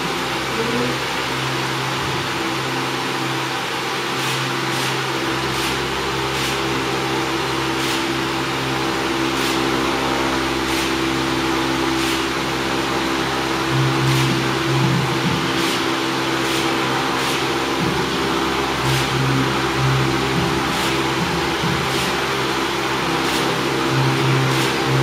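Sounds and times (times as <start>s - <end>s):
floor fan whirring: 0.0s - 25.0s.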